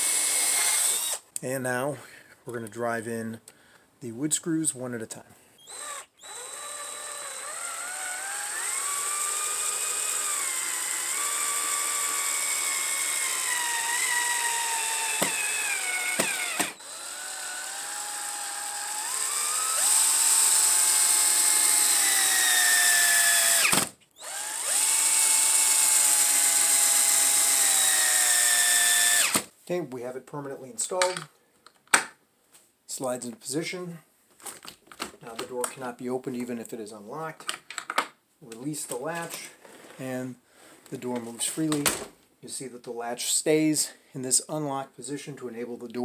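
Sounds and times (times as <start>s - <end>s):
cordless drill driving screws: 0.0s - 1.2s, 5.6s - 29.5s.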